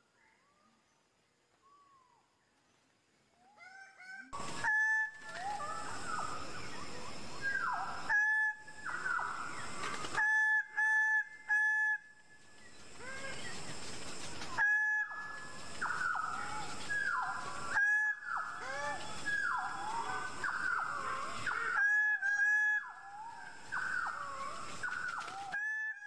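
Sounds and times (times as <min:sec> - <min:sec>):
harsh rasping bird calls: 0:12.9 - 0:26.0.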